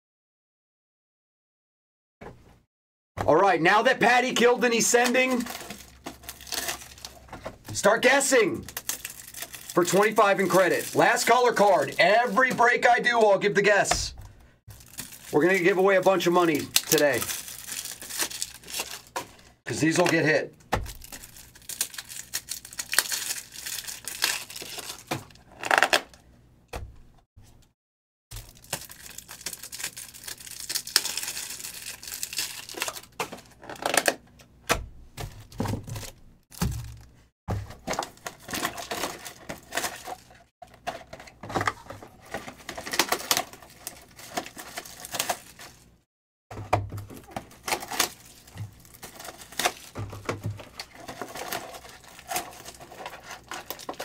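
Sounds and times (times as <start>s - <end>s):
plastic wrap crinkling and tearing: 4.6s - 12.9s, 14.7s - 19.6s, 20.8s - 26.1s, 28.3s - 34.2s, 37.7s - 45.9s, 47.1s - 54.0s
boxes knocking on table: 46.5s - 47.2s.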